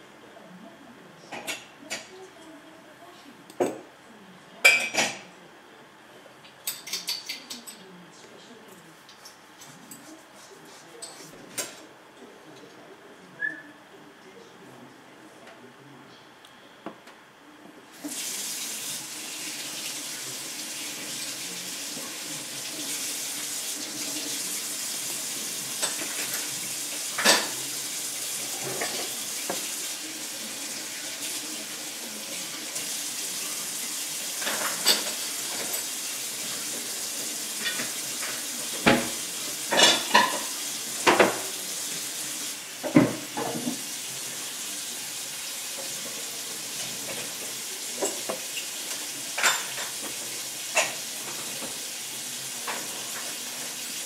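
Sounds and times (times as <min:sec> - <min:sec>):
hiss like running water: 0:17.9 - 0:54.0.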